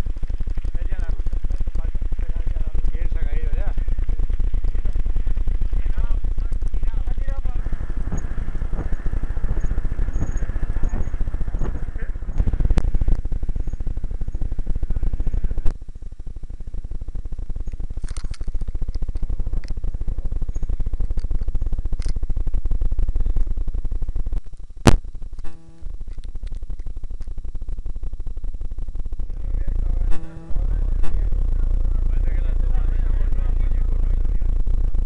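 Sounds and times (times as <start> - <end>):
fast rattling: 0.0 - 35.0
rumbling wind: 0.0 - 35.0.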